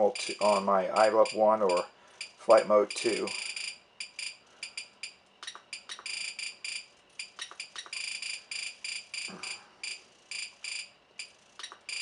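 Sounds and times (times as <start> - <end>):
short high-pitched beeps: 3.1 - 12.0.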